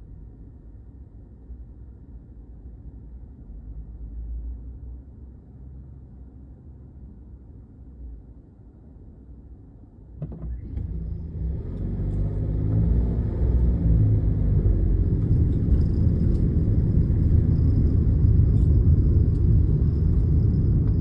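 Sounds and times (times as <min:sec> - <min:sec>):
road rumble: 0:00.0 - 0:21.0
car engine accelerating: 0:10.5 - 0:21.0.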